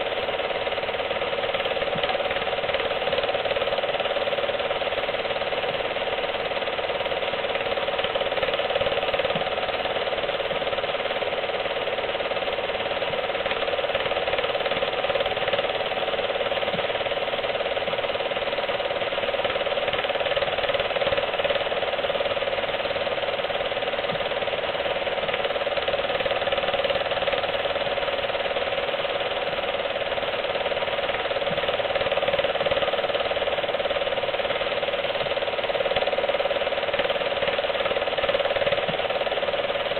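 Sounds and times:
film projector clattering: 0:00.0 - 0:39.9.

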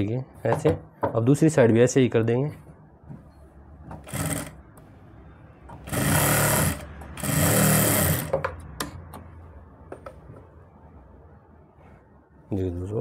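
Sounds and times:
sewing machine running: 0:04.0 - 0:04.6, 0:05.8 - 0:08.4.

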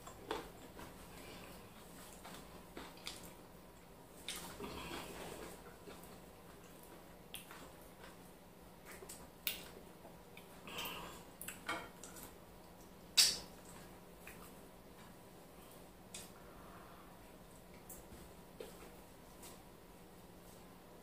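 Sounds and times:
wet eating smacks: 0:02.0 - 0:08.2.

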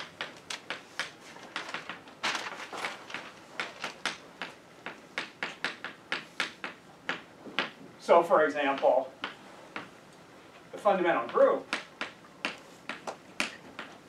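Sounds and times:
chalk tapping and scraping on blackboard: 0:00.0 - 0:02.1, 0:02.9 - 0:07.8, 0:08.7 - 0:10.0, 0:11.2 - 0:14.0.

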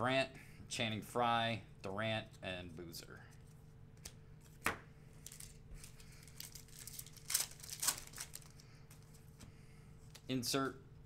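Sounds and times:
wrapper crinkling and tearing: 0:05.2 - 0:08.6.

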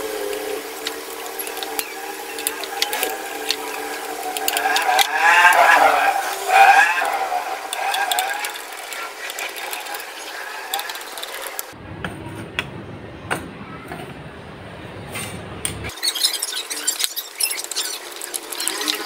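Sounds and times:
screwdriver metal clicks and scrapes: 0:00.3 - 0:11.8
turning screw squealing: 0:00.8 - 0:11.8, 0:15.9 - 0:19.0.

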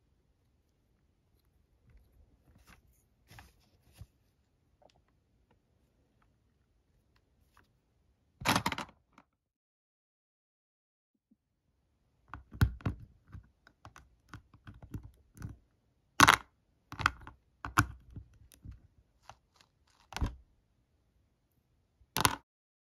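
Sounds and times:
small plastic clicks and taps: 0:12.3 - 0:15.6, 0:16.2 - 0:20.4, 0:22.2 - 0:22.4.

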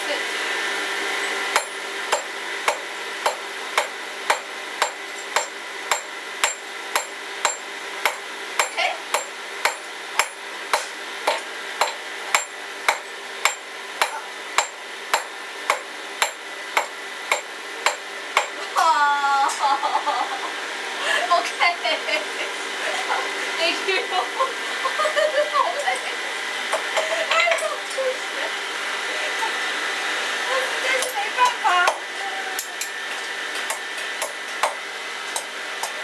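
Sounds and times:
hammer striking iron on anvil: 0:01.5 - 0:18.6, 0:33.7 - 0:34.8
people laughing: 0:18.8 - 0:23.3, 0:24.0 - 0:26.2, 0:26.9 - 0:27.6.

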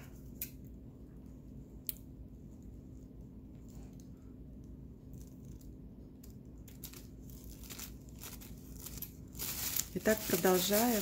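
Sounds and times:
plastic crinkling: 0:05.1 - 0:11.0
scissors snipping plastic bag: 0:06.7 - 0:11.0.

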